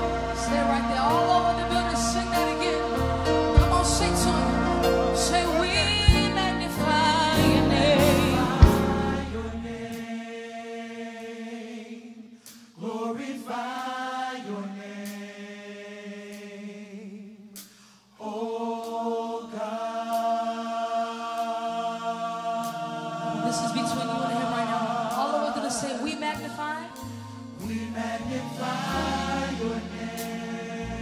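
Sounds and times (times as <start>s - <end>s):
choir singing in harmony: 0.0s - 31.0s.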